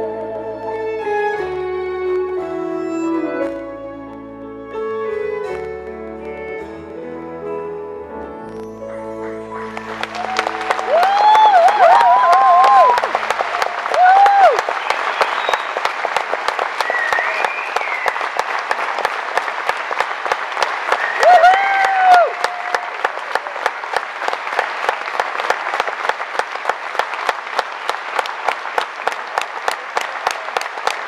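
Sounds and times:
audience applauding: 9.0s - 31.0s
rhythmic clapping: 9.3s - 31.0s
loud whoops: 9.6s - 15.7s, 16.8s - 18.2s, 20.9s - 23.6s.

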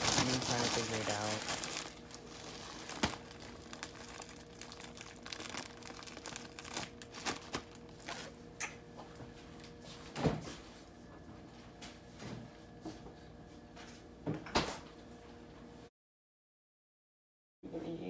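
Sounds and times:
plastic bag crinkling: 0.0s - 8.3s.

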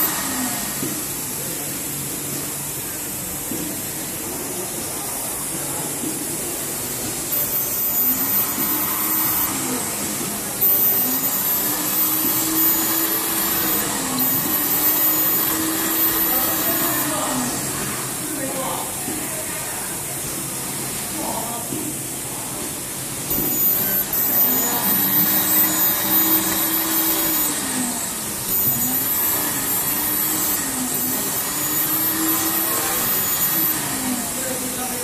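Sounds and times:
machine whirring: 0.0s - 1.3s, 6.2s - 18.2s, 23.2s - 35.0s
thin high whine: 0.0s - 1.6s, 6.4s - 18.0s, 23.3s - 35.0s.

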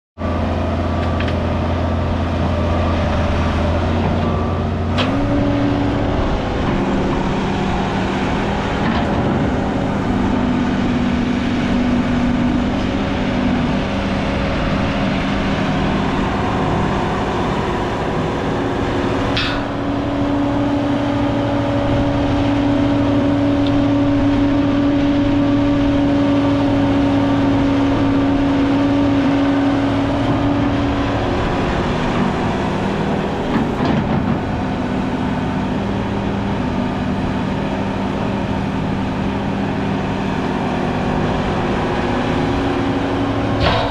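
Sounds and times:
excavator diesel engine: 0.2s - 43.9s
sharp metal clanks: 19.4s - 19.9s, 43.6s - 43.9s.

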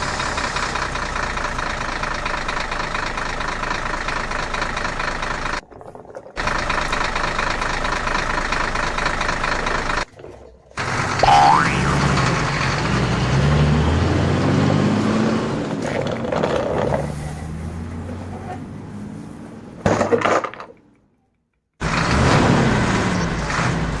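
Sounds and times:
tractor engine idling: 0.0s - 14.4s.

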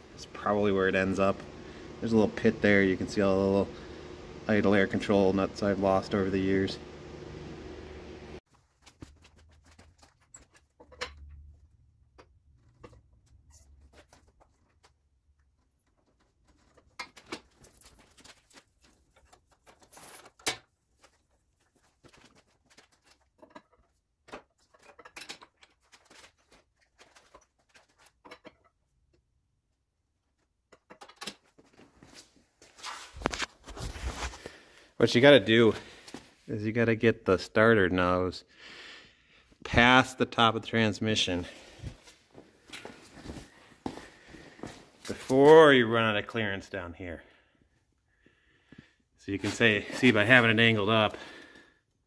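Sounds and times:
metal tools clicking and knocking: 23.4s - 25.8s.

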